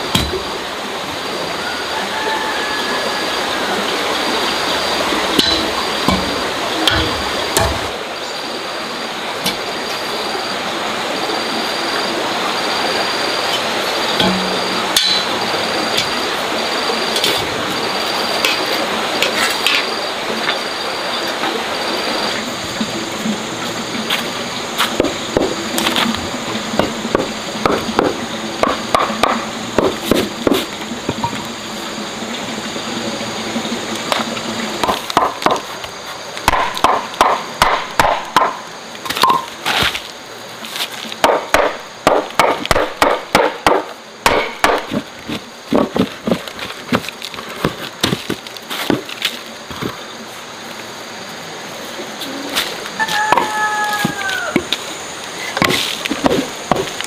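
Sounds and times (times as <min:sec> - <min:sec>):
sharp chopping knocks: 0:00.1 - 0:00.4, 0:05.4 - 0:07.9, 0:36.5 - 0:38.6, 0:41.2 - 0:45.0, 0:55.6 - 0:56.9.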